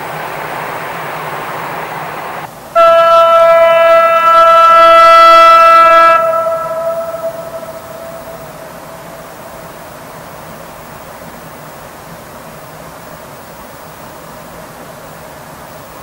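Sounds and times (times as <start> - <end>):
steady rushing noise: 0.0 - 2.8
locomotive horn blast: 2.2 - 9.7.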